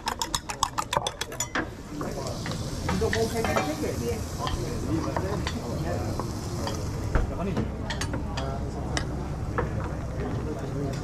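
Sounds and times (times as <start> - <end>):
food sizzling in a pan: 1.7 - 7.4.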